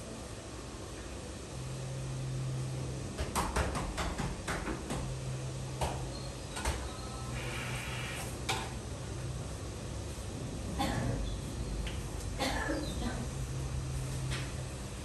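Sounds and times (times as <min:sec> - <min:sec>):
low steady hum: 0:00.0 - 0:03.6.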